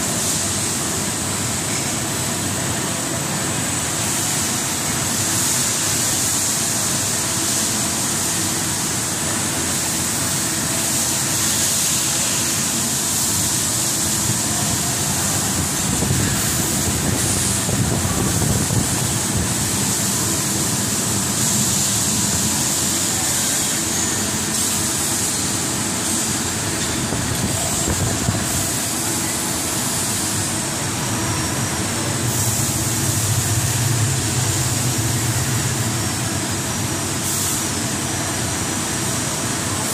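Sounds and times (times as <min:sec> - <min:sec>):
continuous machine hiss: 0:00.0 - 0:39.9
low machine hum: 0:26.6 - 0:38.4.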